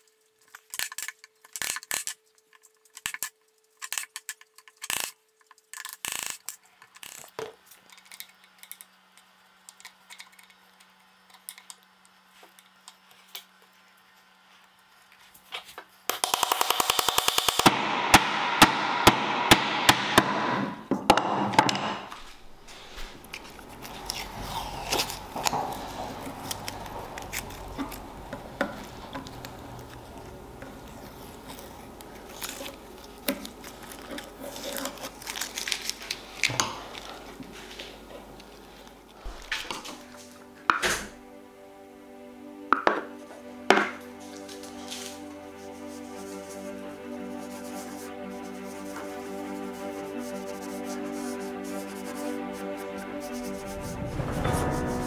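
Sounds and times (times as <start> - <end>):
chisel taps and scrapes: 20.9 - 22.3
masking tape crackling: 22.1 - 40.4, 44.0 - 55.0.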